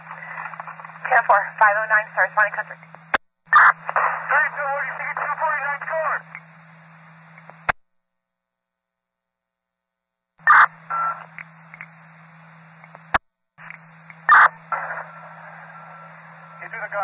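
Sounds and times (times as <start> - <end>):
radio hiss and tone: 0.0 - 7.8, 10.4 - 17.0
loud radio burst: 3.5 - 6.3, 10.4 - 10.9, 14.2 - 17.0.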